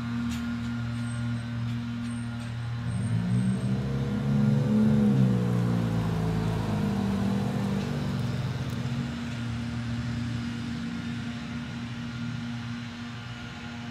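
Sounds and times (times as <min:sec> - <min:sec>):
truck diesel engine driving away: 0:00.0 - 0:13.4.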